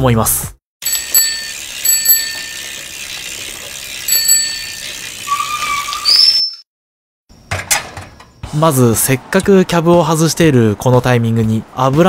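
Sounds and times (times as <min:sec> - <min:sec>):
bicycle bell ringing: 0:00.8 - 0:06.6.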